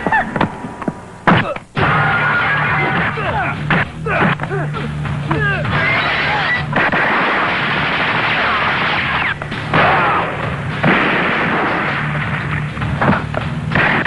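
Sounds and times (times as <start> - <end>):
explosions: 5.7 - 14.0
gunfire: 6.0 - 14.0.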